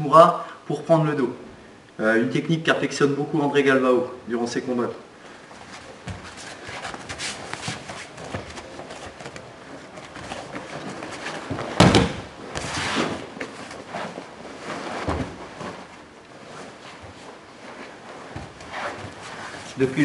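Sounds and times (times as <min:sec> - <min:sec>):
bodies shifting on mats: 0:05.2 - 0:20.0
cloth rustling: 0:05.3 - 0:20.0
body thudding onto mat: 0:06.0 - 0:13.6, 0:14.9 - 0:15.9.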